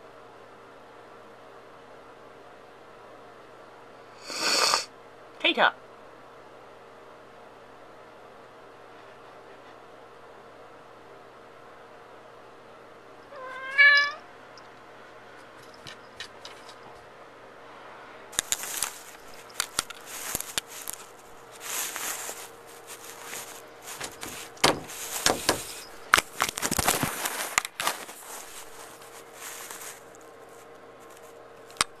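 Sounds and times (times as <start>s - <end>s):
faint steady hum: 0.0s - 32.0s
cat scratching at door: 21.8s - 26.7s.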